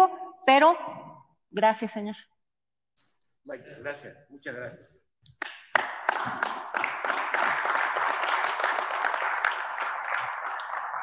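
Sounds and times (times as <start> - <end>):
audience clapping: 5.3 - 11.0.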